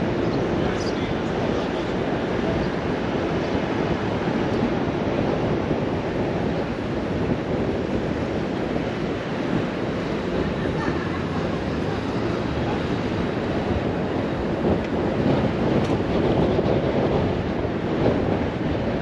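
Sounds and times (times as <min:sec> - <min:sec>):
crowd voices: 0:00.0 - 0:05.8, 0:08.8 - 0:15.4
traffic: 0:00.0 - 0:19.0.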